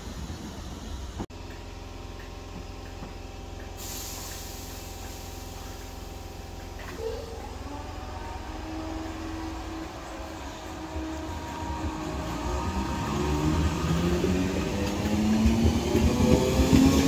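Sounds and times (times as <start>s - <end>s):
train electrical equipment humming: 0.0s - 17.0s
electric train motor whine: 6.9s - 17.0s.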